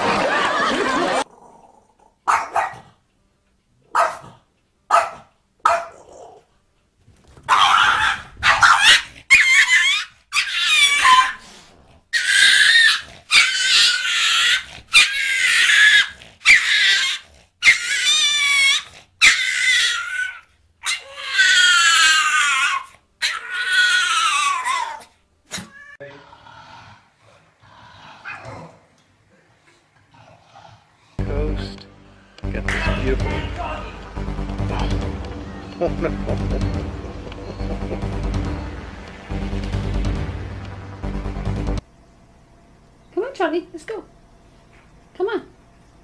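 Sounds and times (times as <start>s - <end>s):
small dog barking: 2.2s - 2.9s, 3.9s - 6.4s, 7.5s - 11.4s.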